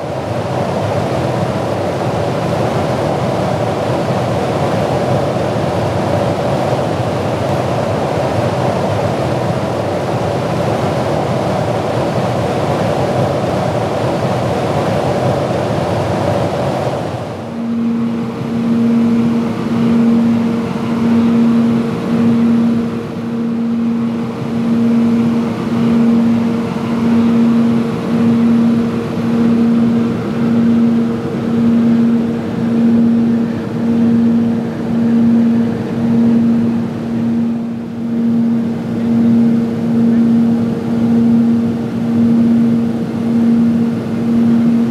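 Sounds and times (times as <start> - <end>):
aircraft engine and slipstream rush: 0.0 - 44.9
pulsing engine drone: 17.1 - 44.9.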